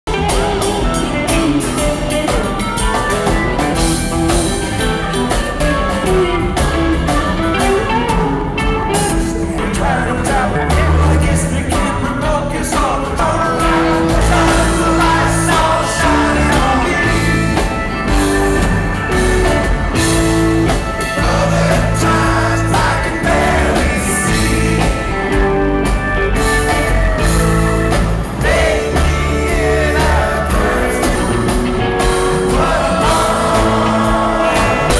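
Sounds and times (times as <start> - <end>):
drums: 0.0 - 34.9
electric guitar: 0.1 - 34.9
man singing: 9.0 - 17.8, 21.0 - 25.4, 28.4 - 34.9.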